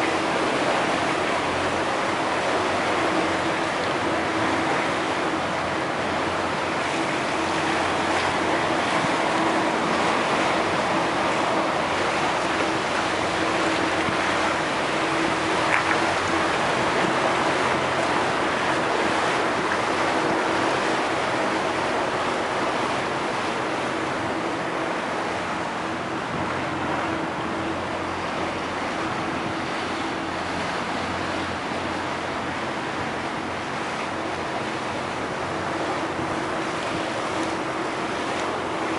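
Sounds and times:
boat motor humming: 0.0 - 38.9
water rushing along hull: 0.0 - 38.9
wind on microphone: 0.0 - 38.9.

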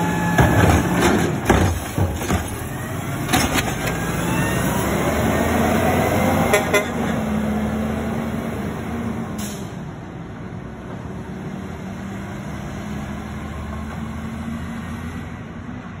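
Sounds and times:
garbage truck engine running: 0.0 - 5.5
garbage truck horn toots: 6.4 - 7.2.

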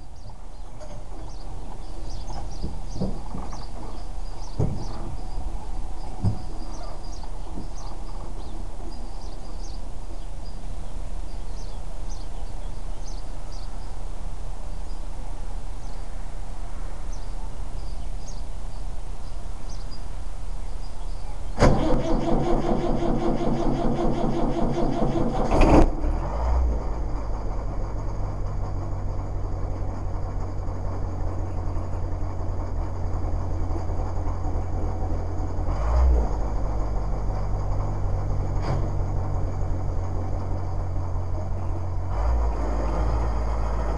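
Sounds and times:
birds chirping: 0.0 - 21.6, 27.2 - 43.9
engine idling: 16.9 - 43.9
engine starter cranking: 21.6 - 29.4.

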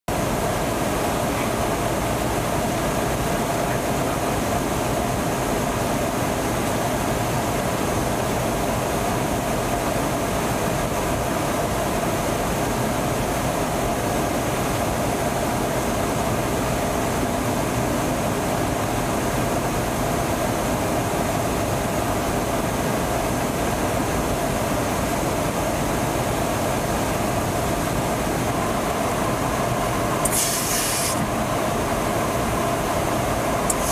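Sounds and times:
aircraft engines droning: 0.1 - 33.9
constant hum: 0.1 - 33.9
rushing air: 27.2 - 33.9.

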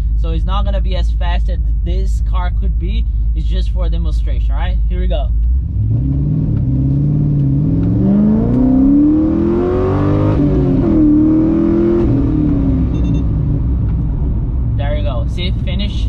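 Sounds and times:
car engine accelerating: 5.2 - 16.0.

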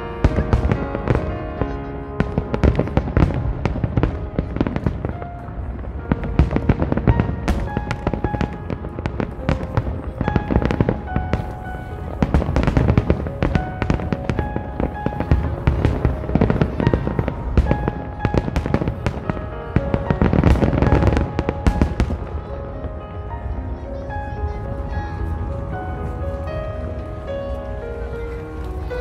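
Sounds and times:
fireworks bursting: 0.0 - 23.3
music playing: 0.0 - 29.0.

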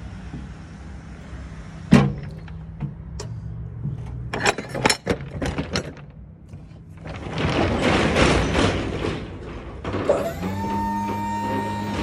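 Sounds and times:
roll-up door rattling: 6.9 - 12.0.

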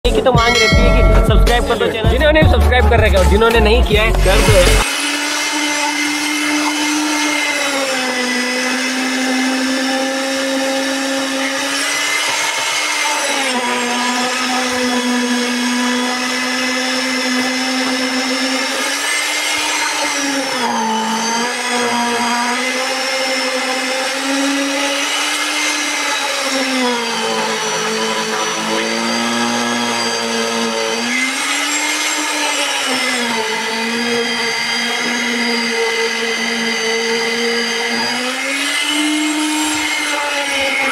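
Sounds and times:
concrete vibrator motor whine: 0.2 - 40.9.

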